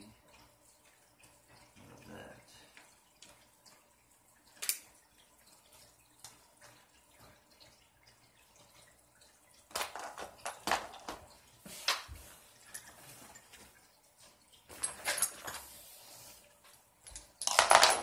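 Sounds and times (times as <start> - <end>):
small parts clicking and rattling: 9.7 - 11.2, 14.7 - 15.7, 17.0 - 18.0.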